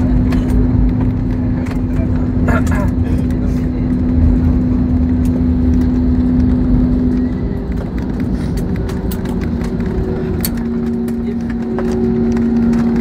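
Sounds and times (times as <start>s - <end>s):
steady hum: 0.0s - 13.0s
wheels and engines rumbling: 0.0s - 13.0s.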